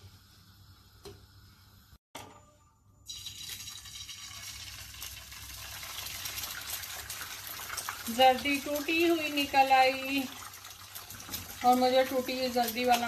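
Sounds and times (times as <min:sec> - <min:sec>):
egg sizzling in hot oil: 0:03.1 - 0:13.0.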